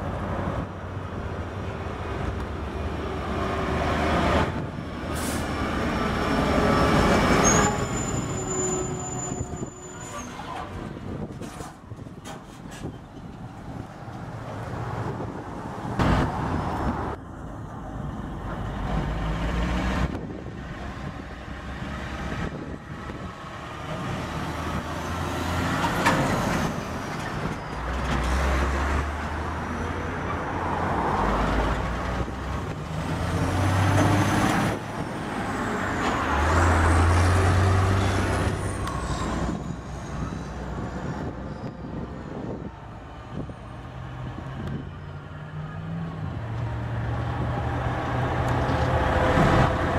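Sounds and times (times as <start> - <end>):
diesel truck engines under load: 0.0 - 49.9.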